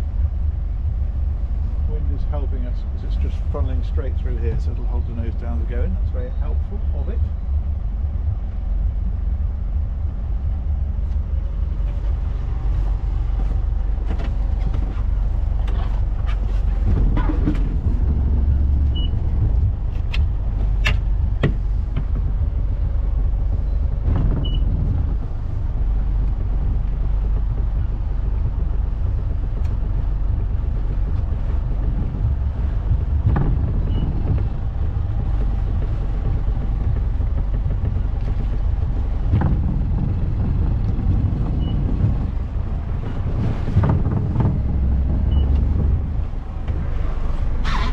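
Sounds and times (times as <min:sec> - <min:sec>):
boat engines rumbling: 0:00.0 - 0:47.9.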